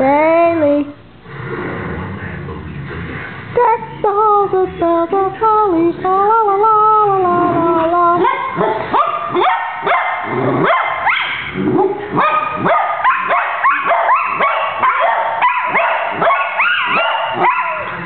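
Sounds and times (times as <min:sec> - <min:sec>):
dogs howling and yipping: 0:12.2 - 0:18.0.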